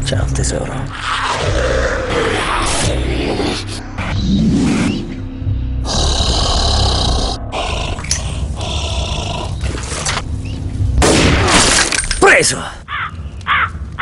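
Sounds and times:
zombie growling and snarling: 0.9s - 5.1s, 5.8s - 10.2s.

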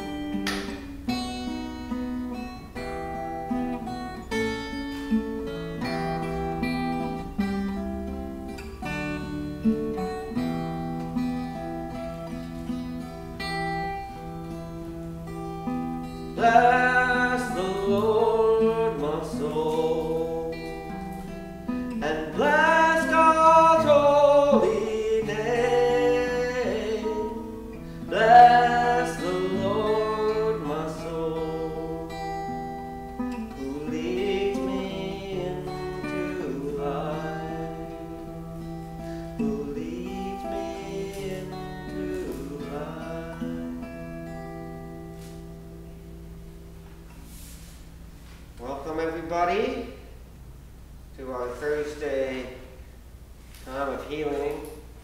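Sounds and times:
acoustic guitar strumming: 0.0s - 55.0s
person singing a hymn: 16.4s - 21.3s, 21.9s - 43.9s.

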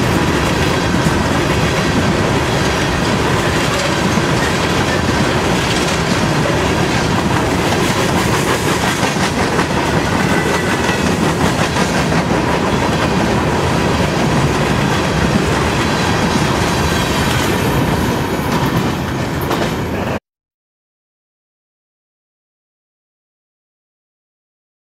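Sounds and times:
wheels clacking over rail joints: 0.0s - 19.9s
freight train rolling past: 0.0s - 20.2s.

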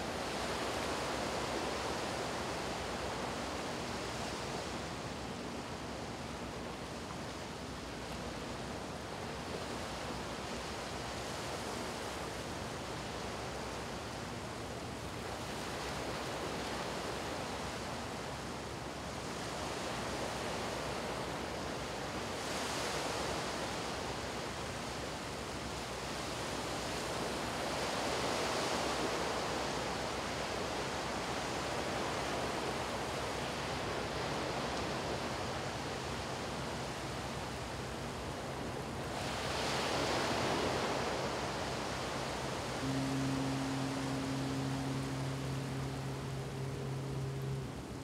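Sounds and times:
small waves on sandy beach: 19.6s - 48.0s.

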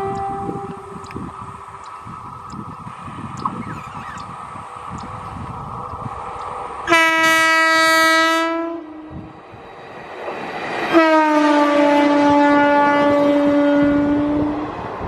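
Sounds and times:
locomotive horn blasts: 0.0s - 1.0s, 6.8s - 9.1s, 10.9s - 14.7s
train running noise: 0.0s - 15.0s.

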